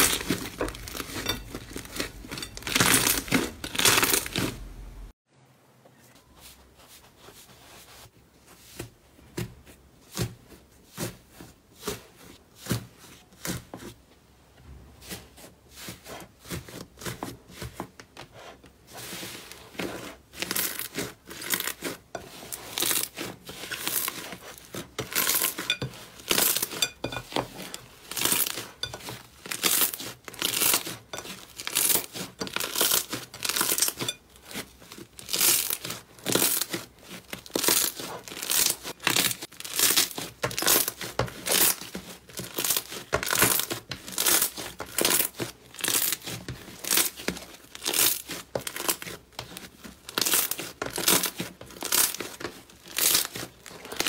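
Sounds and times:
slime crackling and popping: 0:00.0 - 0:04.5, 0:20.3 - 0:27.2, 0:28.0 - 0:54.0.

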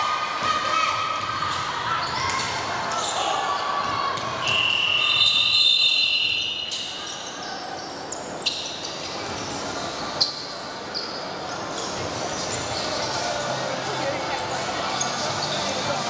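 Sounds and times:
referee's whistle blast: 0:04.4 - 0:06.7.

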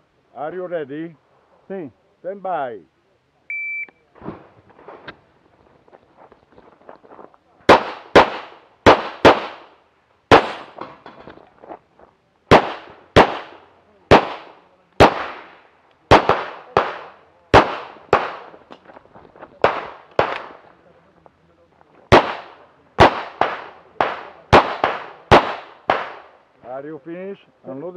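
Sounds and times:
pistol shots: 0:07.7 - 0:10.8, 0:12.5 - 0:18.6, 0:19.6 - 0:20.6, 0:22.1 - 0:26.3.

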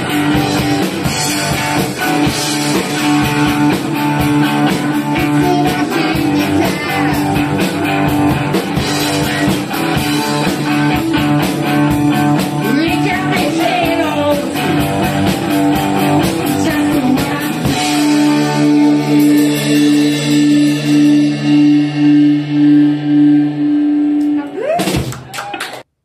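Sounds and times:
drum kit playing: 0:00.0 - 0:25.6
electric guitar: 0:00.0 - 0:25.8
man singing: 0:04.4 - 0:08.1, 0:08.7 - 0:10.7, 0:12.4 - 0:15.4, 0:16.0 - 0:19.3.

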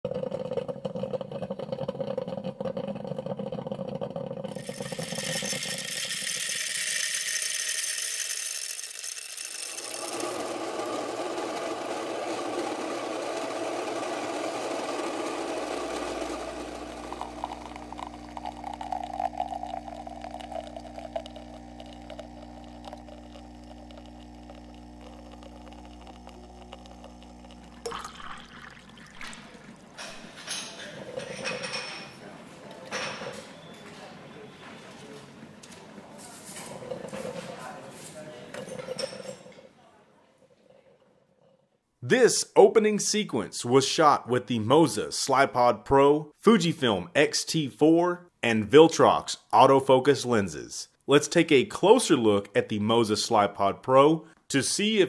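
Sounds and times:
coffee grinder motor humming: 0:00.1 - 0:30.4.

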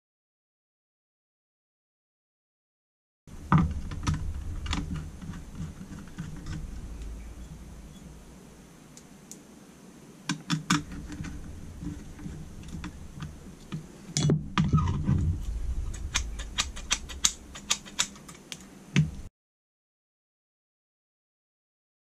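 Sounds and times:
metal parts clicking and tapping: 0:15.9 - 0:19.2.

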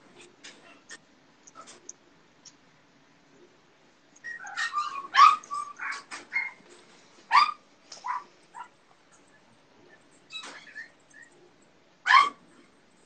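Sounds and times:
dog yipping and whimpering: 0:04.2 - 0:06.6, 0:07.3 - 0:08.7, 0:10.3 - 0:11.4, 0:12.1 - 0:12.4.

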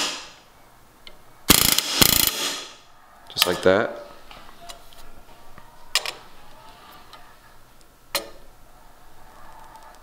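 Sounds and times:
sharp tool clicks: 0:01.5 - 0:02.6.

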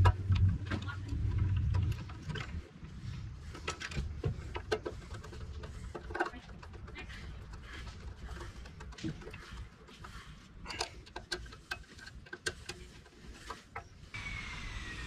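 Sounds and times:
low rumble: 0:00.0 - 0:04.2.

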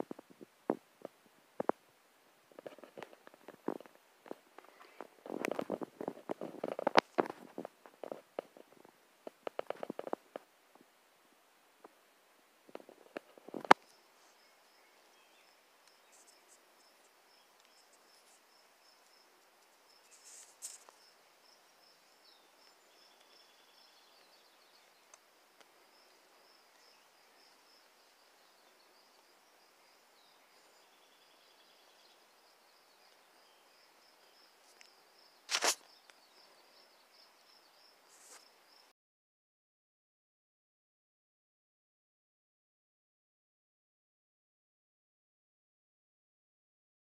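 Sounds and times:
faint high chirping: 0:13.7 - 0:38.9
brief rustle: 0:19.6 - 0:21.0, 0:35.5 - 0:35.9, 0:38.1 - 0:38.5.

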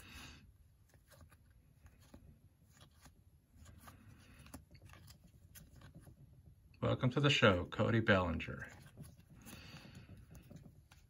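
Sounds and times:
cards being flipped: 0:00.7 - 0:06.2.

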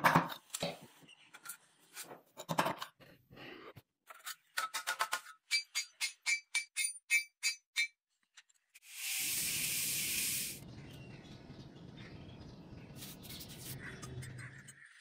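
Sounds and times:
loud steam hiss from quenching: 0:08.8 - 0:10.6.

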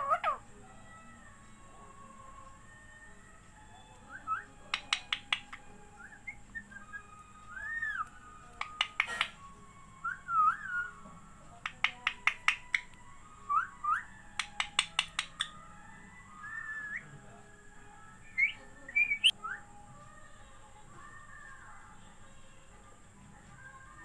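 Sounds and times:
parakeet whistles and chirps: 0:03.6 - 0:17.2, 0:18.2 - 0:19.8
parakeet sharp clicks: 0:04.7 - 0:05.7, 0:08.6 - 0:09.5, 0:11.6 - 0:13.0, 0:14.3 - 0:15.6.

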